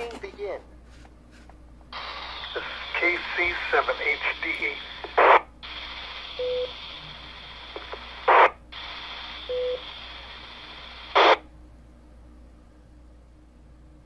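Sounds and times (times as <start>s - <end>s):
radio hiss: 1.9s - 11.4s
loud burst of static: 2.0s - 11.4s.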